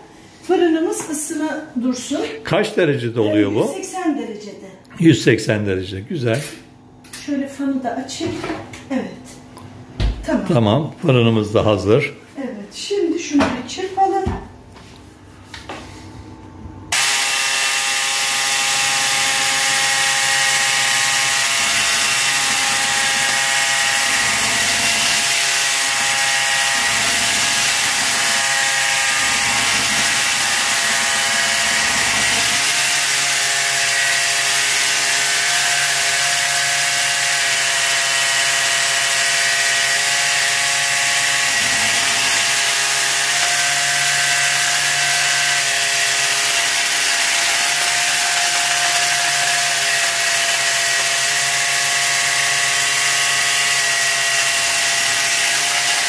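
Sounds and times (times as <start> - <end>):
electric hand mixer whining: 16.9 - 56.0.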